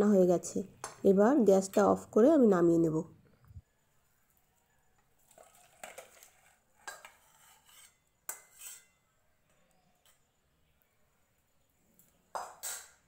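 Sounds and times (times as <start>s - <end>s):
metal spatula scraping pan: 5.3s - 9.1s.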